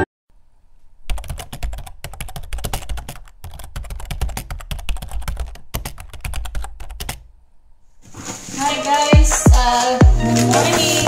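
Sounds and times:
rapid sharp clicks and taps: 0:01.1 - 0:07.2.

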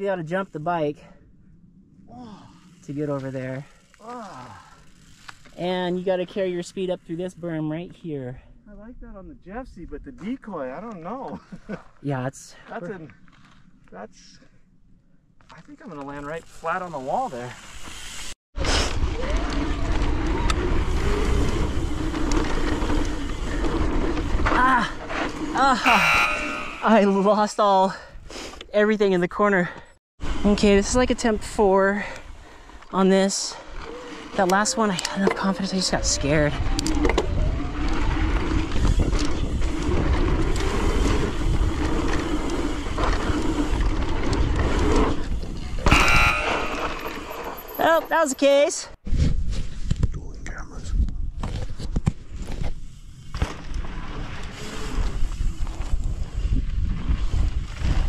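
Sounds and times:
tyres rolling on dirt trail: 0:02.5 - 0:07.5, 0:15.4 - 0:26.4, 0:29.2 - 0:48.8, 0:51.7 - 0:58.0
wavering hum: 0:25.8 - 0:27.2
wind rushing over microphone: 0:35.9 - 0:46.3, 0:49.0 - 0:58.0.

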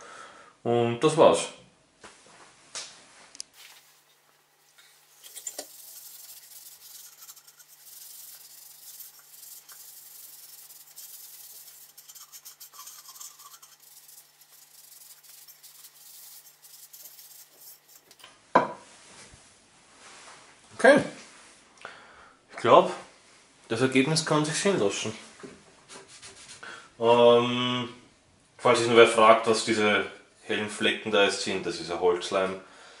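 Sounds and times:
cloth rubbing on wood: 0:04.9 - 0:18.2.

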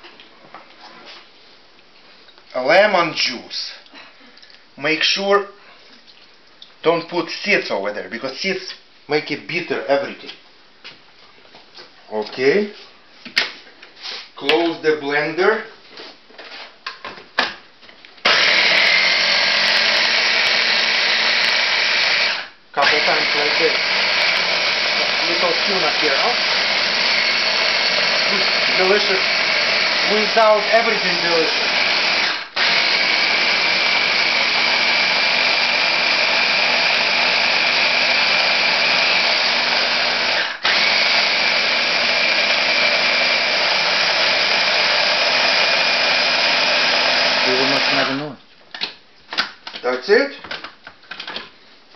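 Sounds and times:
food chopper motor running: 0:18.2 - 0:48.2.

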